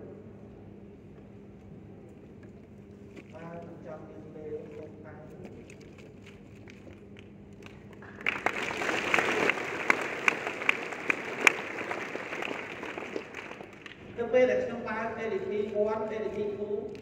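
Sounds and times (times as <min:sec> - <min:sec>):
audience applauding: 0:07.6 - 0:14.0.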